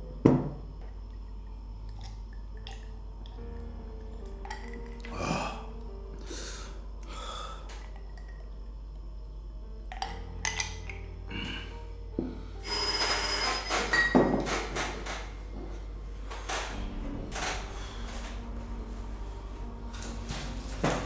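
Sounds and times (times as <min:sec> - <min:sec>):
soft background music: 0:00.0 - 0:21.0
bell ringing: 0:12.6 - 0:14.2.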